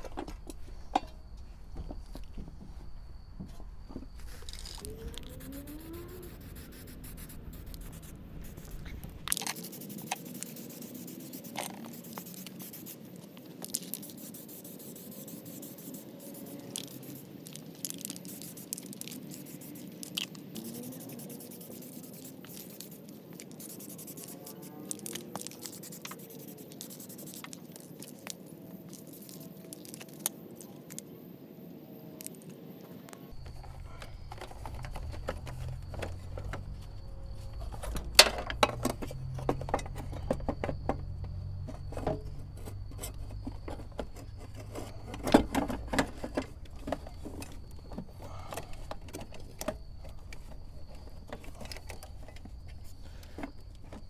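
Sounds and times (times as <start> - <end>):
spray paint can spraying: 5.2 - 13.0, 13.6 - 28.2.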